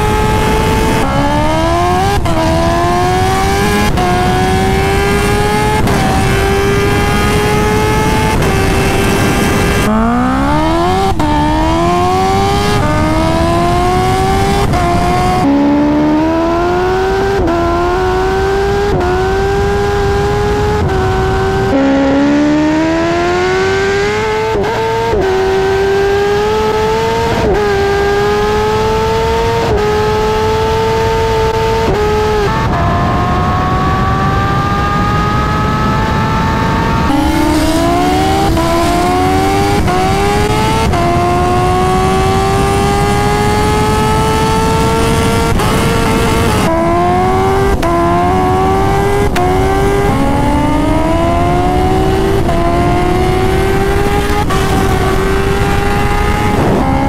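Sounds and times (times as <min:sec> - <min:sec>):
motorcycle engine accelerating: 0:00.0 - 0:57.0
wind rush: 0:35.2 - 0:57.0.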